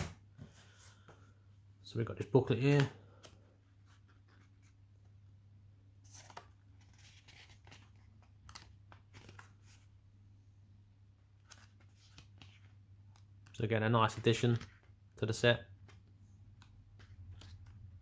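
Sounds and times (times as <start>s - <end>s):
paper pages turning: 6.0s - 9.9s, 11.4s - 15.0s, 15.8s - 18.0s.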